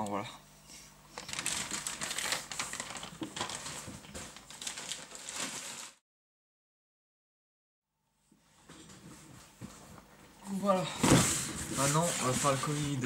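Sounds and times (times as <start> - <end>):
packaging crinkling: 1.2 - 6.0.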